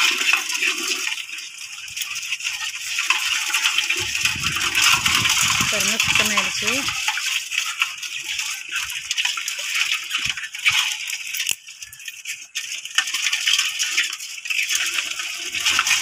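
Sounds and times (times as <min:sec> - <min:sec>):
crab shells cracking: 0:10.7 - 0:11.7.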